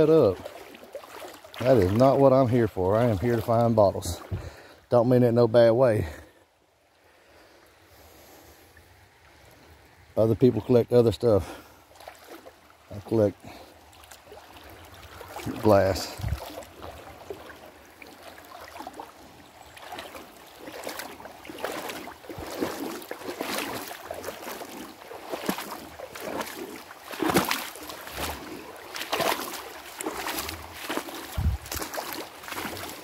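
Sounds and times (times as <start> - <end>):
footsteps wading through water: 0.0 - 4.9, 11.3 - 33.0.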